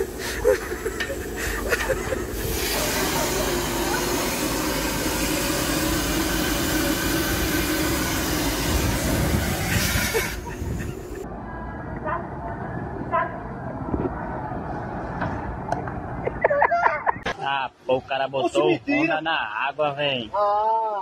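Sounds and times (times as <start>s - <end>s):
vacuum hose rushing hiss: 0.0s - 11.2s.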